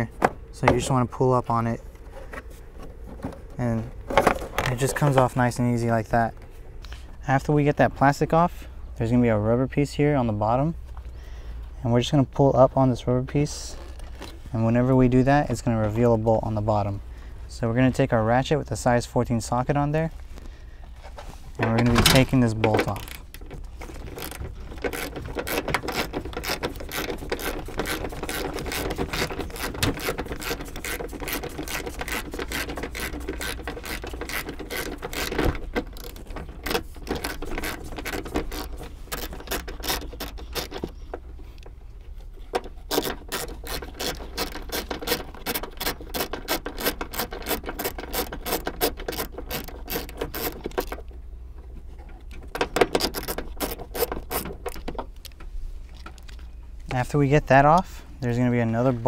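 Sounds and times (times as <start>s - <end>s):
hand ratchet clicking: 22.8s - 40.9s, 42.9s - 51.0s, 52.7s - 54.9s.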